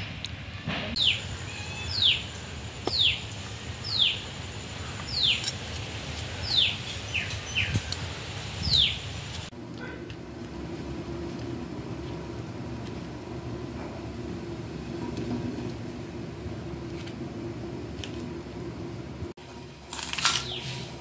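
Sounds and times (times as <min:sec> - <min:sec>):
steady low hum: 0:00.9 - 0:21.0
animal's short high call: 0:01.0 - 0:02.2.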